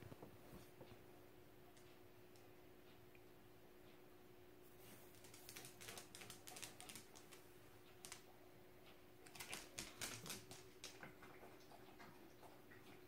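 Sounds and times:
faint steady hum: 0.0s - 13.0s
dog claws clicking on floor: 5.1s - 8.3s, 9.2s - 11.1s.

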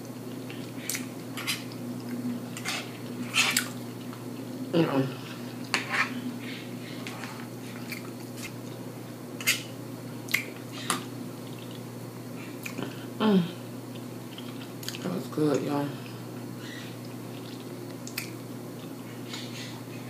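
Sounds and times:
steady low hum: 0.0s - 20.0s
wet lip smacks and clicks: 10.3s - 10.6s, 17.4s - 18.9s
open-mouthed chewing: 13.9s - 15.0s, 16.7s - 19.7s.

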